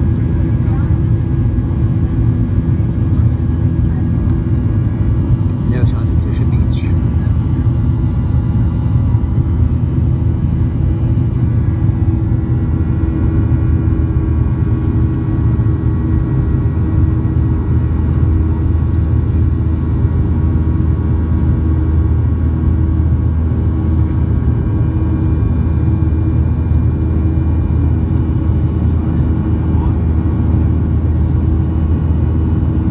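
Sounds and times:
faint engine whine: 0:00.0 - 0:32.9
jet engines rumbling: 0:00.0 - 0:32.9.

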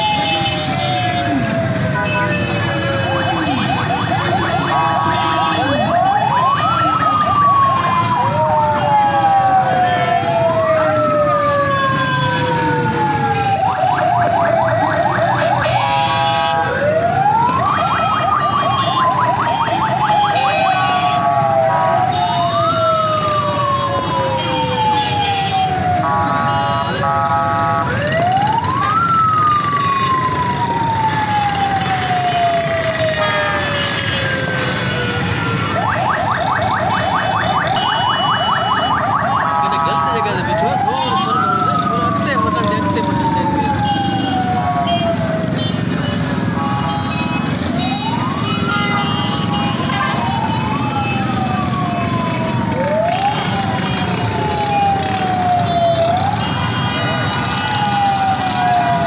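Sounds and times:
crowd noise: 0:00.0 - 0:15.8, 0:34.7 - 0:45.1
traffic noise: 0:00.0 - 0:59.0
vehicle siren wailing: 0:00.0 - 0:59.0.

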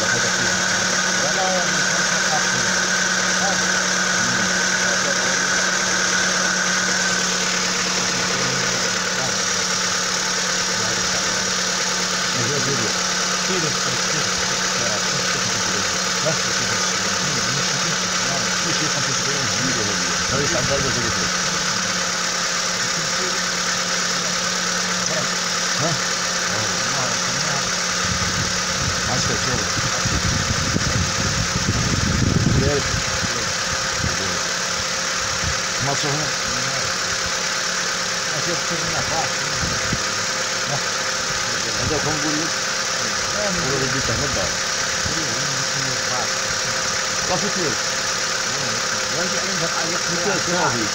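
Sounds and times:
car engine idling with ticking: 0:00.0 - 0:50.9
steady low hum: 0:00.0 - 0:50.9.

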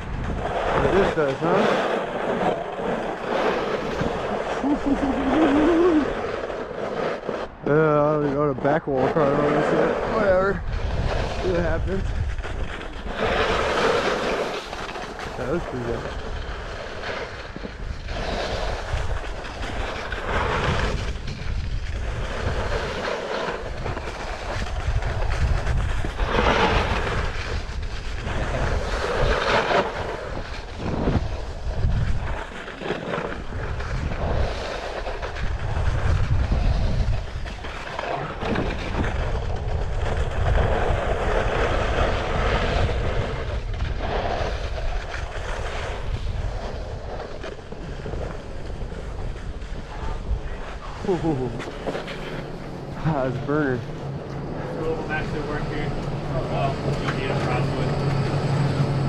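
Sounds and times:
snowskate scraping over snow: 0:00.0 - 0:59.0
steady low rumble: 0:38.3 - 0:59.0.

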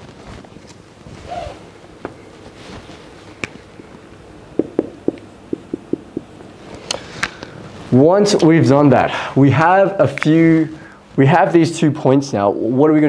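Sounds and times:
marker tapping on whiteboard: 0:04.6 - 0:06.3.

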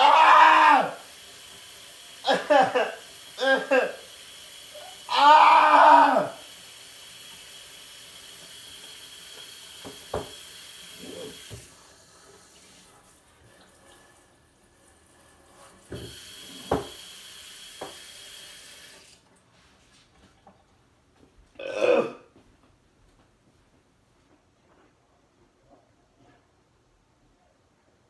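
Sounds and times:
tap water running: 0:00.0 - 0:19.4.

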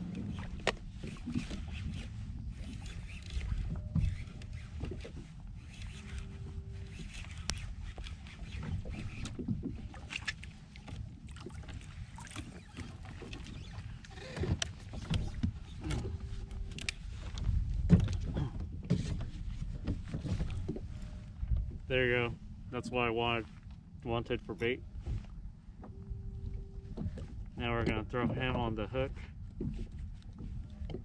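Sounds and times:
water rumble: 0:00.0 - 0:31.0
wind: 0:00.0 - 0:31.0
steady low tone: 0:20.8 - 0:29.6
gear knocking on hull: 0:27.0 - 0:29.0.

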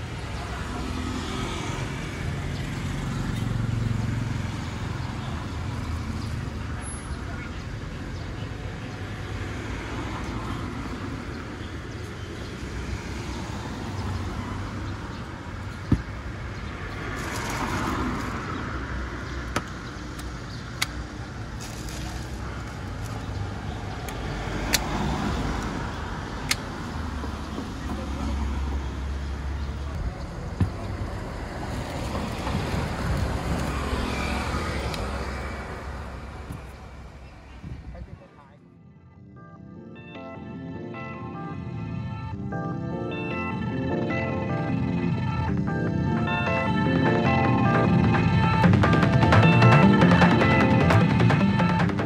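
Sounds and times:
street traffic: 0:00.0 - 0:52.0
vehicle passing by: 0:00.2 - 0:07.2, 0:16.3 - 0:19.5, 0:22.0 - 0:37.2.

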